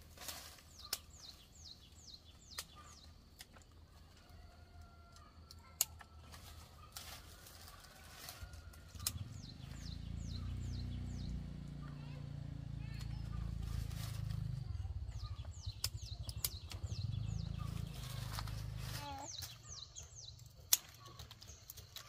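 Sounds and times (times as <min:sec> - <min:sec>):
bird chirping: 0:00.7 - 0:03.5, 0:09.0 - 0:12.2, 0:14.3 - 0:22.0
low rumble: 0:08.9 - 0:19.1
sharp clicks: 0:15.6 - 0:17.0.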